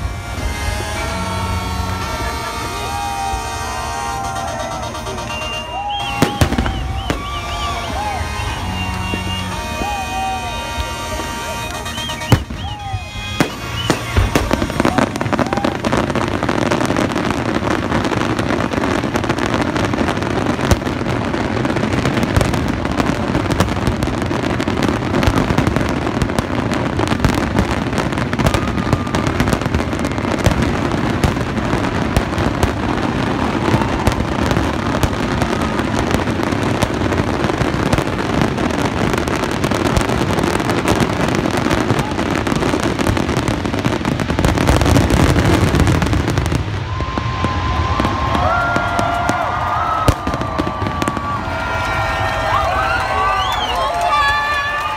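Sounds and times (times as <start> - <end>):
fireworks bursting and crackling: 0.0 - 54.9
sharp firework bangs: 12.1 - 52.4.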